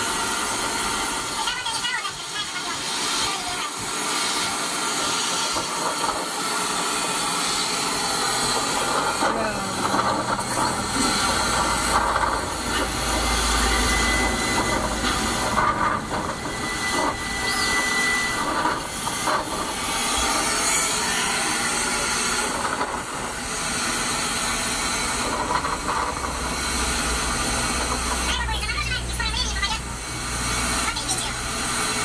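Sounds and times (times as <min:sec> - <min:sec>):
thin high whistle-like tone: 0:17.4 - 0:18.2.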